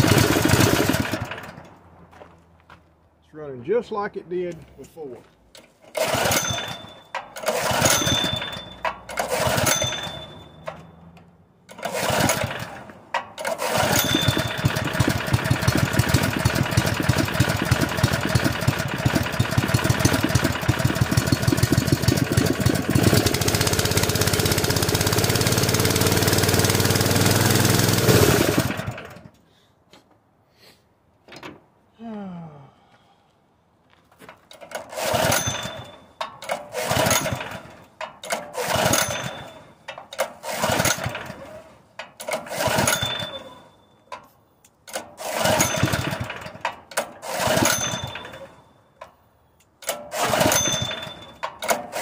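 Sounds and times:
small engine running: 0:00.0 - 0:01.5, 0:07.4 - 0:10.4, 0:11.7 - 0:29.3, 0:34.9 - 0:36.0, 0:36.7 - 0:37.8, 0:38.6 - 0:39.6, 0:40.4 - 0:41.7, 0:42.4 - 0:43.6, 0:45.2 - 0:46.6, 0:47.2 - 0:48.6, 0:50.1 - 0:52.0.

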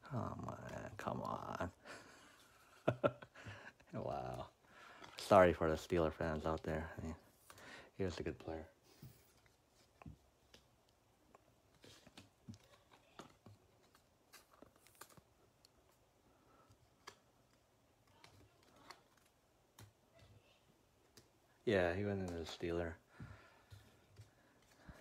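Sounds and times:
trading cards shuffling: 0:11.6 - 0:22.8.

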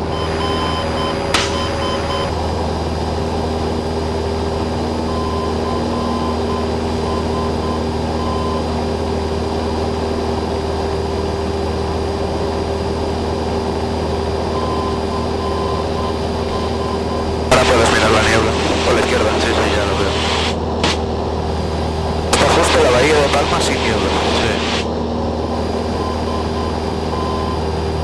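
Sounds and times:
airplane engine droning: 0:00.0 - 0:28.0.

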